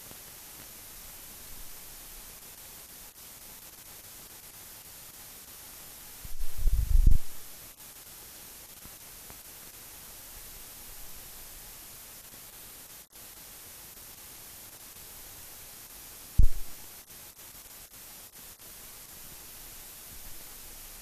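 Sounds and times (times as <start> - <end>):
film transfer hiss: 0.0 - 21.0
low thump: 16.4 - 16.8.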